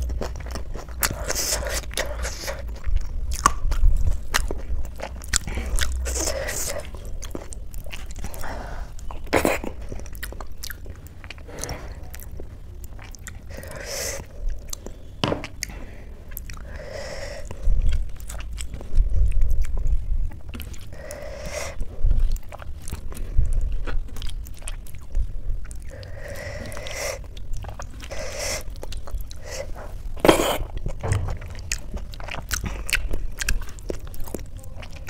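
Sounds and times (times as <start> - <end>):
wet chewing and mouth smacks: 0.0 - 35.0.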